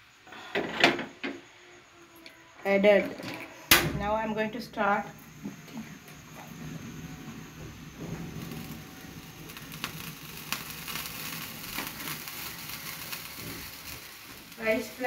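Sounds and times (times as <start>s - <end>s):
steady hiss: 0.0s - 15.0s
water droplets sizzling in a pan: 4.2s - 15.0s.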